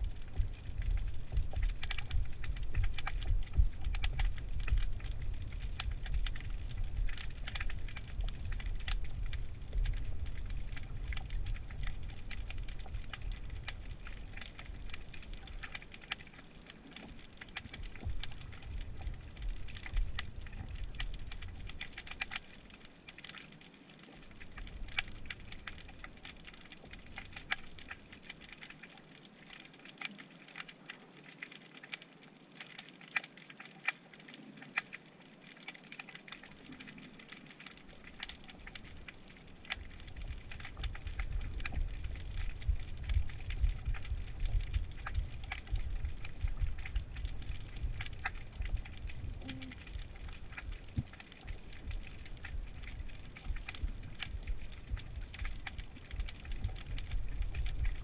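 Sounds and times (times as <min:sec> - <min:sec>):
low rumble of water movement: 0:00.0 - 0:58.0
snapping shrimp clicks: 0:01.6 - 0:10.0, 0:10.7 - 0:23.7.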